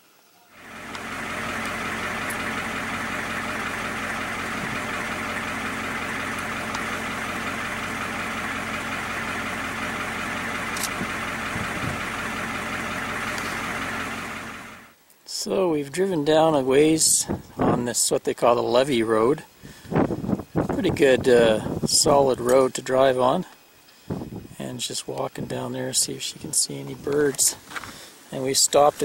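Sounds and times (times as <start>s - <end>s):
vehicle engine idling: 0.5s - 15.0s.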